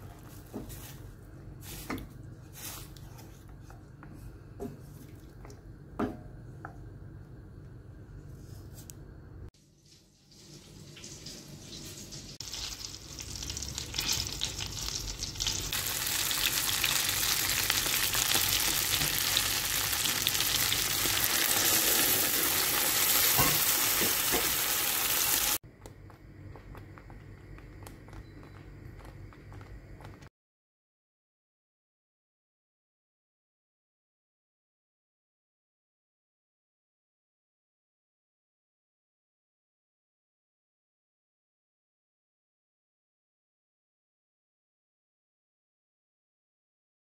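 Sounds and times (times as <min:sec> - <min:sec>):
food sizzling in a hot pan: 0:09.7 - 0:25.6.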